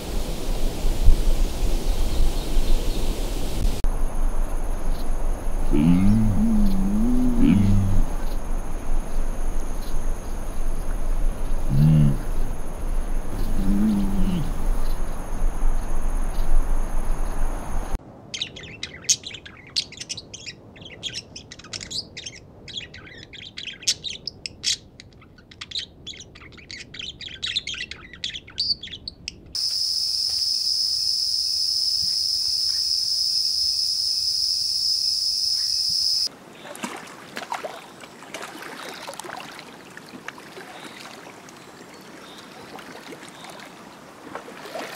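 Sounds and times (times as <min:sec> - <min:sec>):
low rumbling: 0:00.1 - 0:18.0
low animal calls: 0:05.6 - 0:08.4, 0:11.5 - 0:15.1
high insect trilling: 0:13.4 - 0:14.8, 0:29.6 - 0:36.3
birds chirping and twittering: 0:18.4 - 0:29.2
high-pitched insect drone: 0:29.6 - 0:36.3.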